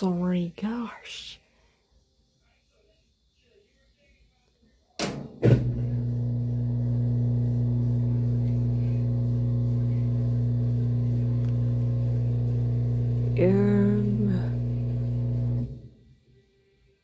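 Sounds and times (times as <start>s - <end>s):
washing machine humming: 5.2s - 16.0s.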